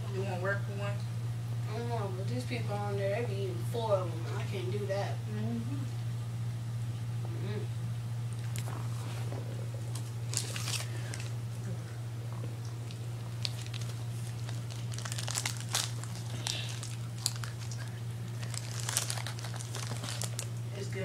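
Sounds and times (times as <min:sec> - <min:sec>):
steady low hum: 0:00.0 - 0:21.0
crinkling and rustling: 0:08.4 - 0:11.4, 0:12.7 - 0:20.6.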